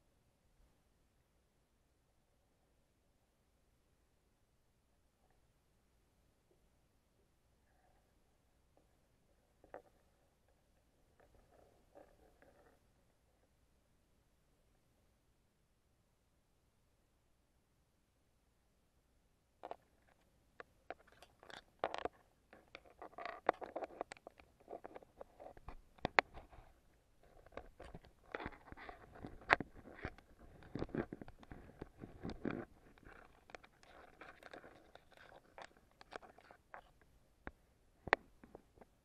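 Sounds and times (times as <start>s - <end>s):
underwater clicks and crackles: 19.6s - 39.0s.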